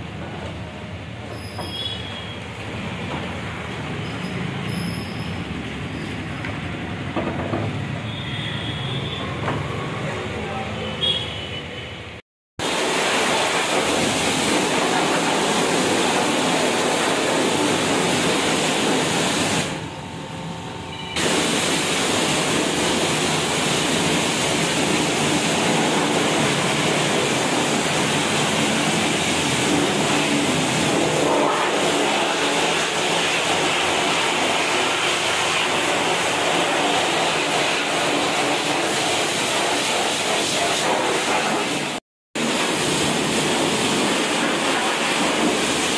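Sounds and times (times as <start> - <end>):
pressure washer spraying: 12.6 - 19.9, 21.1 - 45.9.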